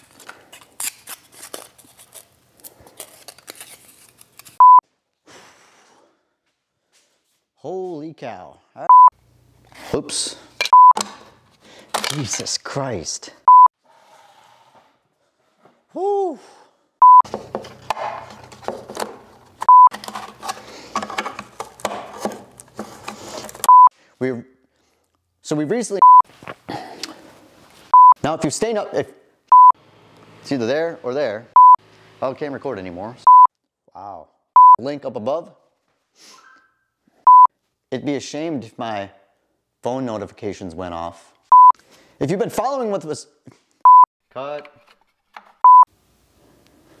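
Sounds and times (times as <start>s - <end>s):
electronic beep: 4.6s - 4.8s, 8.9s - 9.1s, 10.7s - 11.0s, 13.5s - 13.7s, 17.0s - 17.2s, 19.7s - 19.9s, 23.7s - 23.9s, 26.0s - 26.2s, 28.0s - 28.2s, 29.5s - 29.8s, 31.6s - 31.8s, 33.3s - 33.5s, 37.3s - 37.5s, 41.5s - 41.8s.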